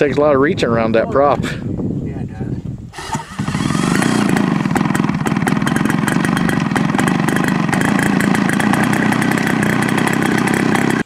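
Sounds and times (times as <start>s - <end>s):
model airplane engine running: 2.9s - 11.0s.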